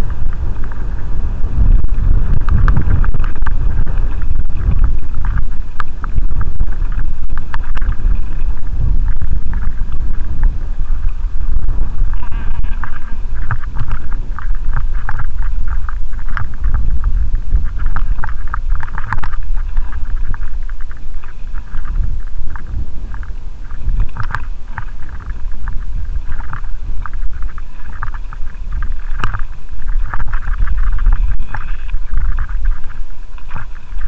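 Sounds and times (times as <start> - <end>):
wind buffeting microphone: 0.0 - 34.0
tyres crunching over loose stones: 11.5 - 34.0.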